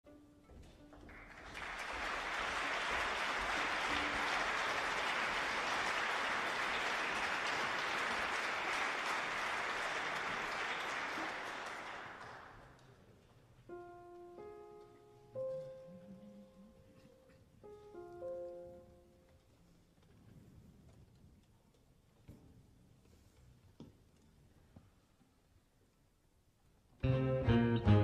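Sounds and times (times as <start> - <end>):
audience applause: 1.0 - 13.0.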